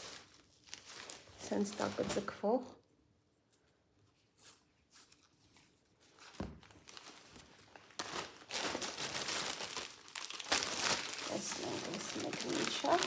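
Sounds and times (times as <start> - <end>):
plastic bags crinkling: 0.0 - 2.5, 6.0 - 13.0.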